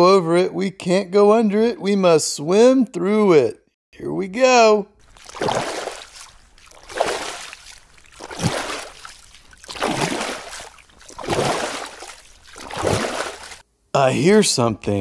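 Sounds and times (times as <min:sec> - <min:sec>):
swimming strokes splashing water: 0:05.0 - 0:13.6.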